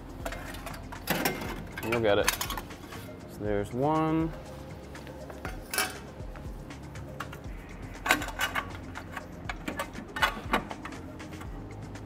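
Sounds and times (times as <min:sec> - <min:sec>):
background music: 0:00.0 - 0:12.0
metallic clicks and rattles: 0:00.2 - 0:02.8, 0:07.1 - 0:11.6.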